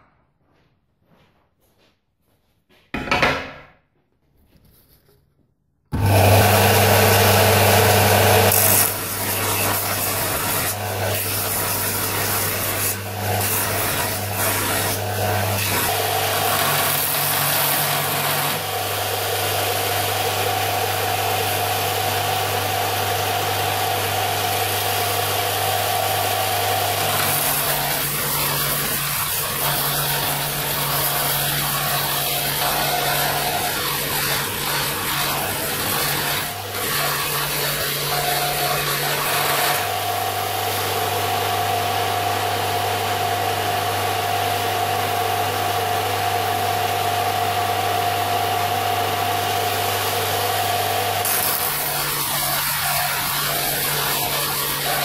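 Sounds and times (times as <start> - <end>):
belt sander grinding steel: 5.9 - 41.7, 48.7 - 55.0.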